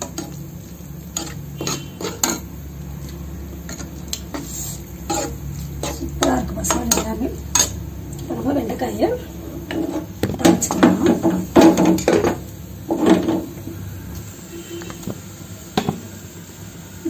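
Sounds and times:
metal spoon scraping pan: 0:01.0 - 0:07.8, 0:09.6 - 0:13.5.

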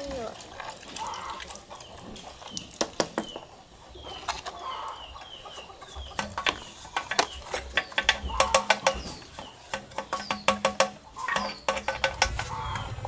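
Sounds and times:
poultry peeping: 0:00.9 - 0:13.0
sharp knocks and taps: 0:02.6 - 0:03.5, 0:06.1 - 0:12.6.

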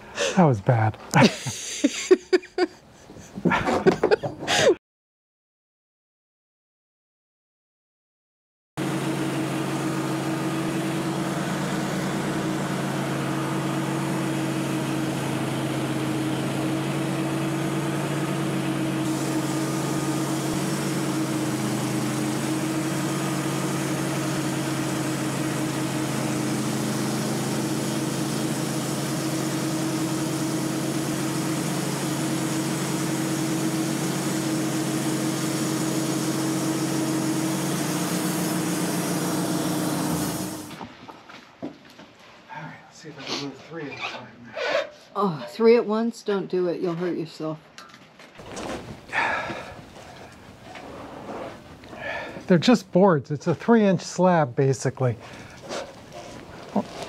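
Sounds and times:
band saw blade cutting wood: 0:08.8 - 0:40.8, 0:55.2 - 0:57.0
gasoline engine running: 0:08.8 - 0:40.8, 0:48.4 - 0:57.0.

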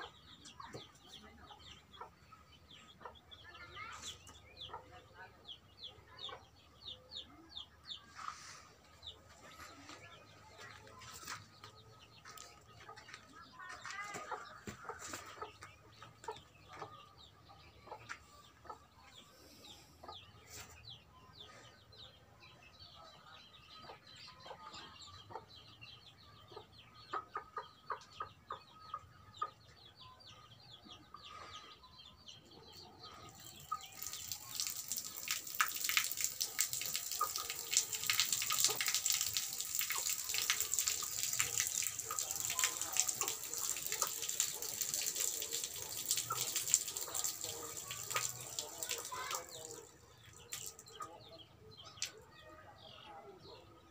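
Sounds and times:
chickens clucking: 0:00.0 - 0:20.8, 0:23.0 - 0:53.9
water splashing: 0:33.4 - 0:51.0.

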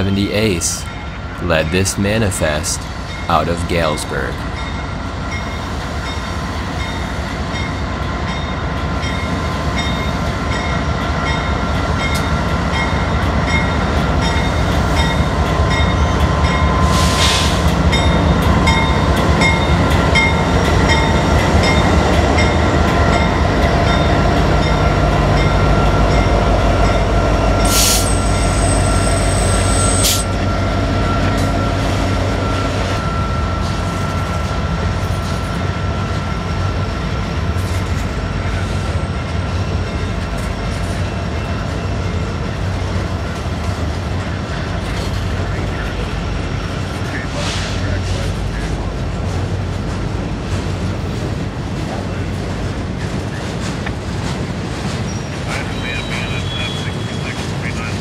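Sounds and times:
freight train wheels rumbling: 0:00.0 - 0:58.0
high wheel squeal: 0:27.6 - 0:31.5, 0:55.1 - 0:57.4.

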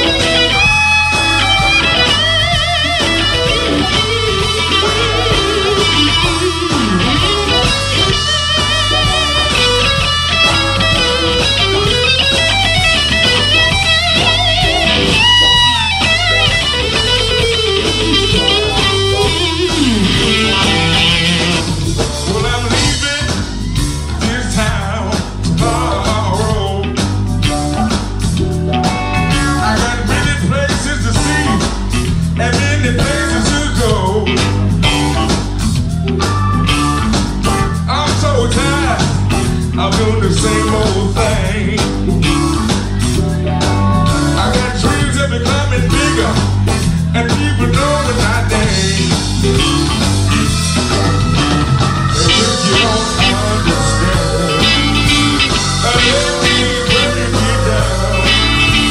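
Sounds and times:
bass and drums: 0:00.0 - 0:58.9
electric guitar with bent notes: 0:00.0 - 0:58.9
man singing: 0:17.8 - 0:27.4, 0:29.3 - 0:35.0, 0:37.6 - 0:58.9.

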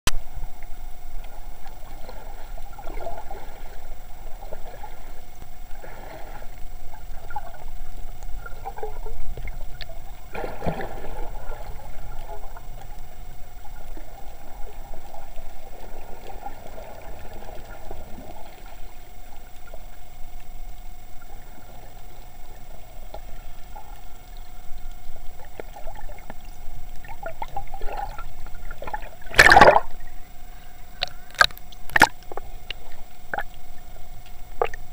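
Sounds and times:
underwater hum: 0:00.1 - 0:34.9
swirling water from swim strokes: 0:00.6 - 0:33.9
loud splash: 0:29.3 - 0:29.9.

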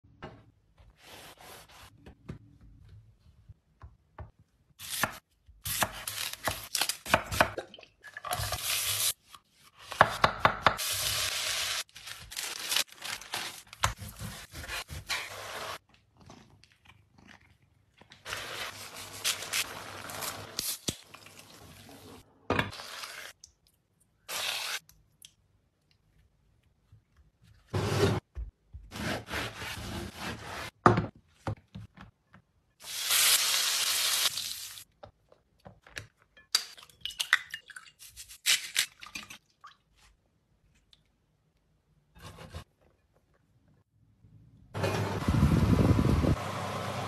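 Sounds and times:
baking paper crinkling: 0:11.8 - 0:14.6, 0:18.0 - 0:20.5.

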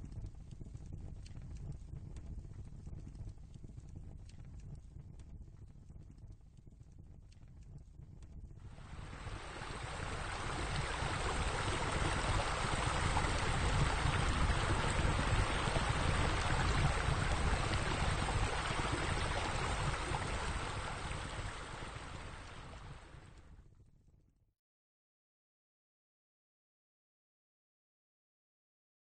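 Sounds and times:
steady rushing noise: 0:08.7 - 0:23.1.

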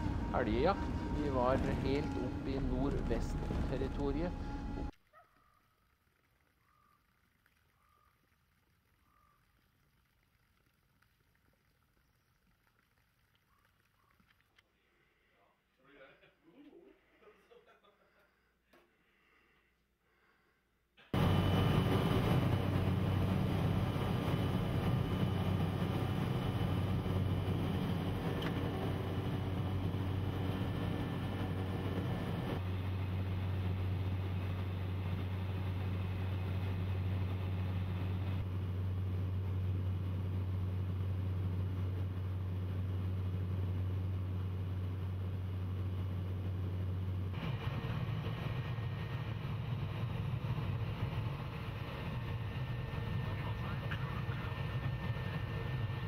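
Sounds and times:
propeller aircraft engine droning: 0:00.0 - 0:04.9, 0:21.2 - 0:56.0.

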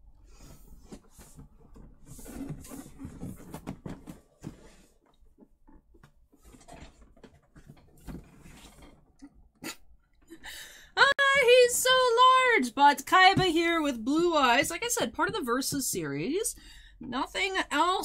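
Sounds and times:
cardboard box scraping and rustling: 0:00.6 - 0:05.0.

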